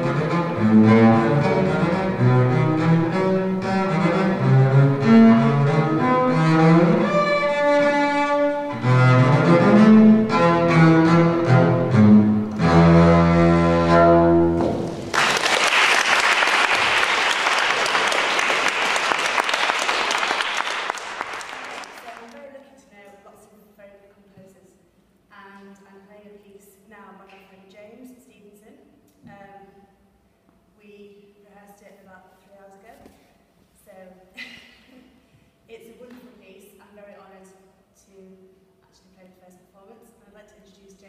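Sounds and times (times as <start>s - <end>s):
bowed double bass: 0.0s - 15.1s
audience applause: 14.8s - 22.3s.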